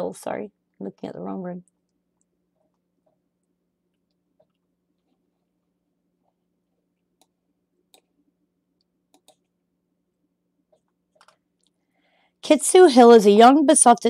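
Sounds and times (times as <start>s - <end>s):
low electrical hum: 0.0s - 14.0s
faint mouse clicks: 8.8s - 9.5s.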